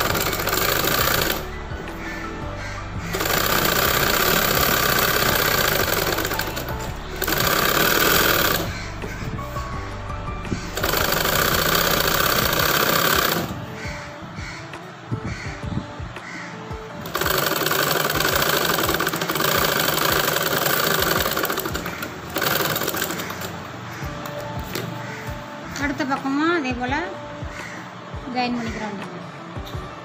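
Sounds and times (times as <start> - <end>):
sewing machine stitching: 0.0 - 1.5, 3.1 - 8.8, 10.8 - 13.6, 17.0 - 23.6.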